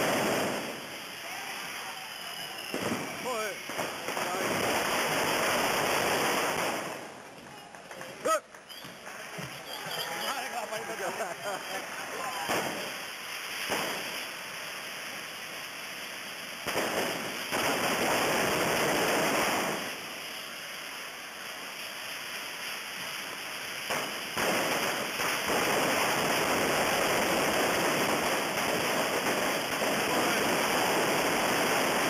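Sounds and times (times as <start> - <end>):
hiss of burning rockets: 0.0 - 32.0.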